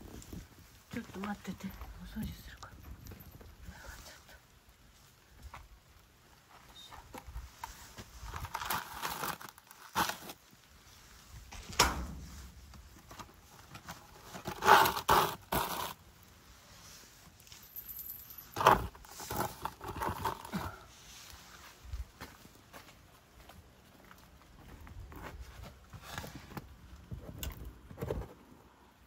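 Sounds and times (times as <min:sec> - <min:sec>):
rustling and scraping by hand: 0:00.0 - 0:22.9, 0:25.1 - 0:29.0.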